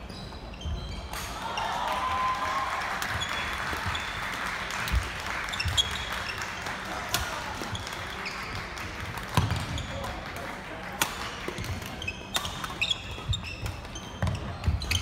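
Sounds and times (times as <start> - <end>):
sneakers squeaking on wooden floor: 0.0 - 1.7, 3.0 - 4.2, 4.9 - 6.5, 9.4 - 10.0, 11.6 - 15.0.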